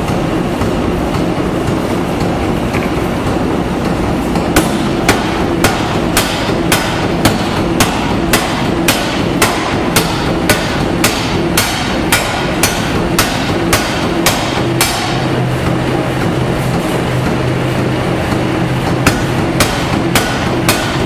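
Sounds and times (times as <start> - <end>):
machine hum: 0.0 - 21.0
power hammer striking steel: 4.3 - 15.4, 18.8 - 21.0.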